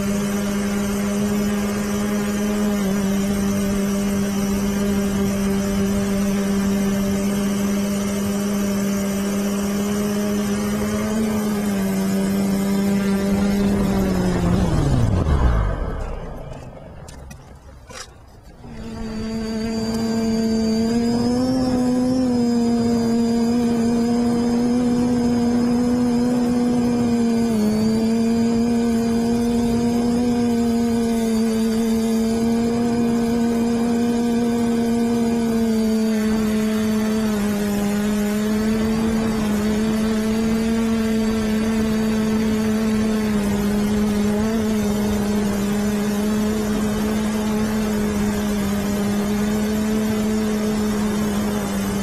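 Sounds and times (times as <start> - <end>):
quadcopter motors whining: 0.0 - 52.0
wind rush: 13.1 - 17.8, 38.6 - 40.8.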